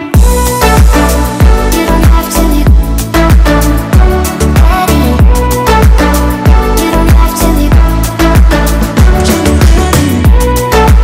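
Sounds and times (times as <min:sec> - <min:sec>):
instrumental backing music: 0:00.0 - 0:11.0.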